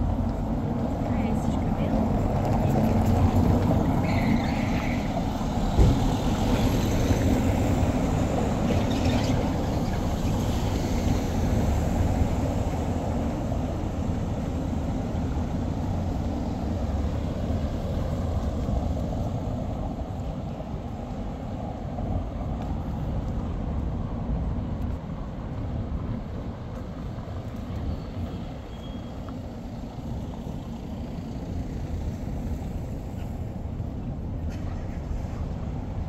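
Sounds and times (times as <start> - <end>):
low rumble of road traffic: 0.0 - 36.0.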